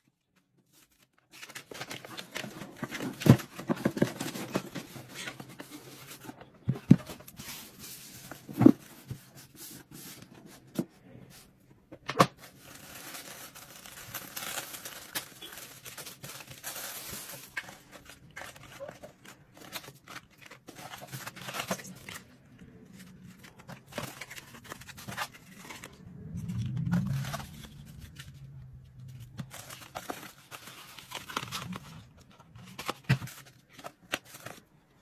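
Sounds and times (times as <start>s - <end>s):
packaging rustling and crinkling: 0.6s - 10.9s, 12.2s - 35.0s
low hum: 22.0s - 32.3s.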